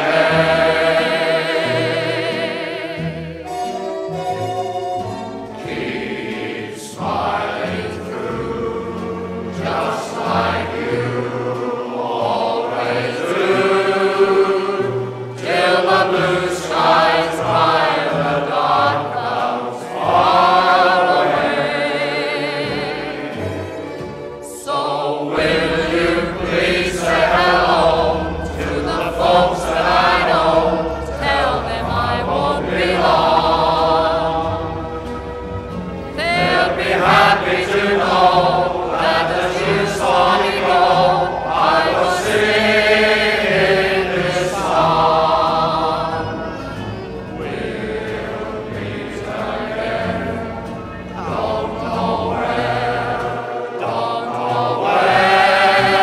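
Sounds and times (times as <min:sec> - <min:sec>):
background music with singing: 0:00.0 - 0:56.0
low bass part: 0:25.3 - 0:36.6.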